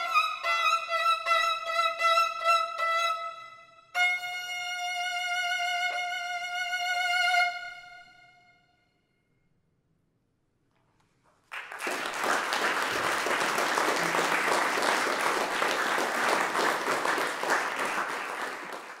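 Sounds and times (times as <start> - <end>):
audience applauding: 11.4 - 19.0.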